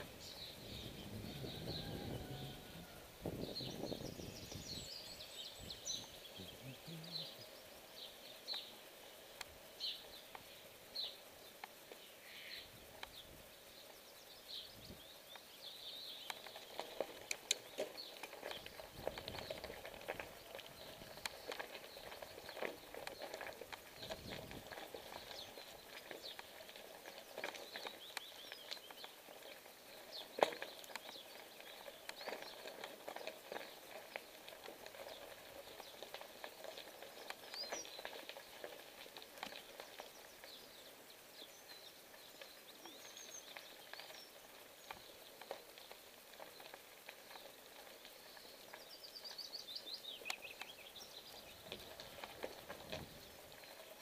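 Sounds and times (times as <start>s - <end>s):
bicycle tyres crunching on gravel: 0.0s - 54.0s
songbirds chirping: 0.0s - 54.0s
bike clicks and knocks: 16.3s - 40.2s.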